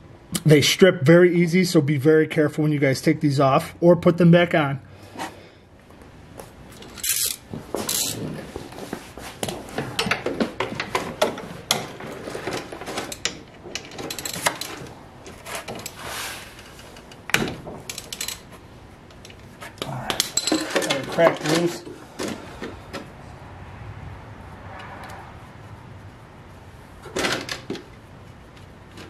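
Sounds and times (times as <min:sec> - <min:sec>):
ratchet clicking on metal: 0:06.9 - 0:08.2, 0:13.1 - 0:14.8, 0:17.8 - 0:18.5.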